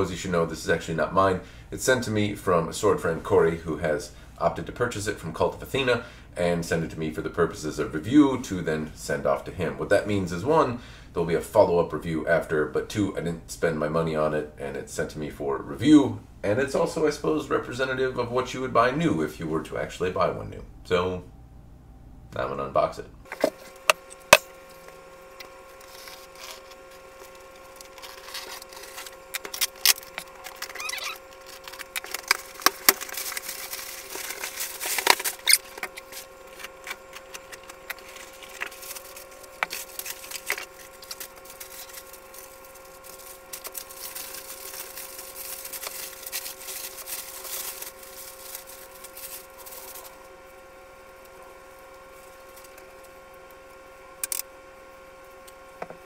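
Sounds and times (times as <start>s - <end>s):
faint steady hum: 0.0s - 56.0s
plastic wrapping crinkling: 23.4s - 50.3s, 51.1s - 53.1s.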